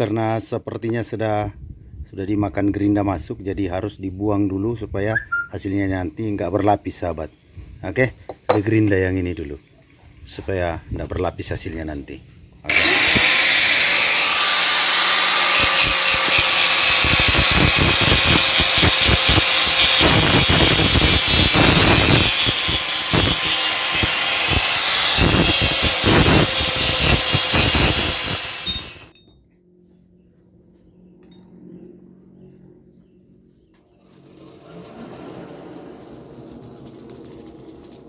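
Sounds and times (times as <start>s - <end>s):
angle grinder grinding steel: 12.7s - 29.2s, 34.0s - 38.0s.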